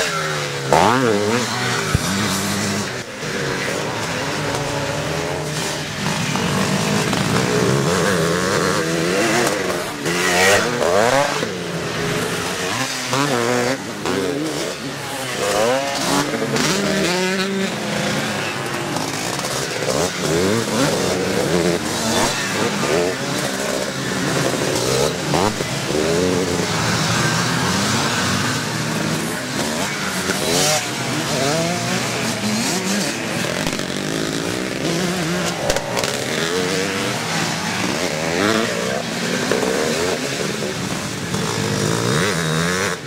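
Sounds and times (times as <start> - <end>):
motocross bikes revving: 0.0 - 43.0.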